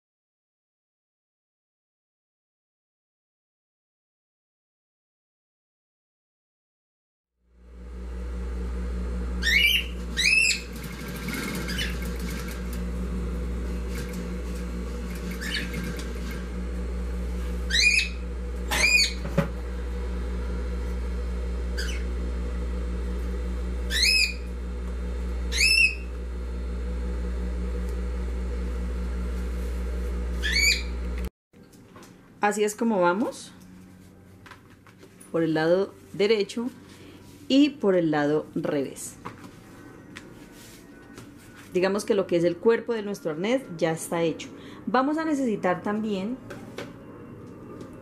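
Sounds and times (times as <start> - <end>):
sewing machine running: 9.4 - 29.5
bird chirping: 17.7 - 19.2.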